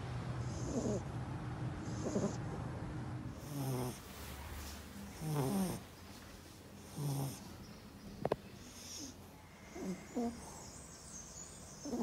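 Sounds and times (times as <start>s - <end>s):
dog snoring: 0.4s - 1.1s, 1.8s - 2.6s, 3.3s - 4.1s, 5.1s - 5.9s, 6.8s - 7.5s, 8.6s - 10.8s, 11.8s - 12.0s.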